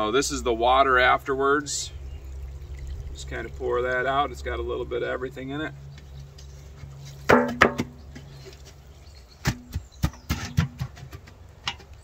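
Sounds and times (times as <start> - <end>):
knocks on metal stockpot: 7.3 - 8.0.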